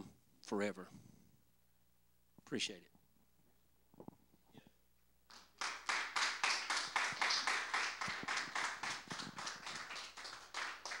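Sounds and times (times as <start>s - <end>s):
congregation applauding: 5.3s - 11.0s.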